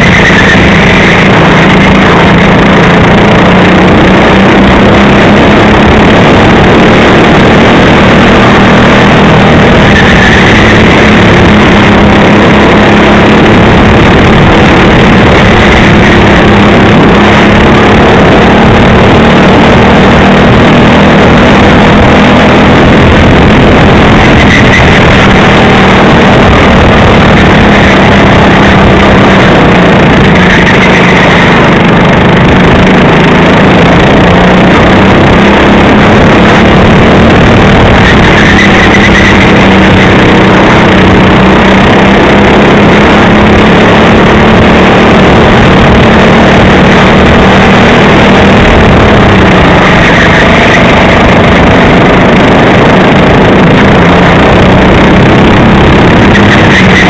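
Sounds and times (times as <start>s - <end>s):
go-kart engine running hard: 0.0s - 57.0s
loud rushing noise: 0.0s - 57.0s.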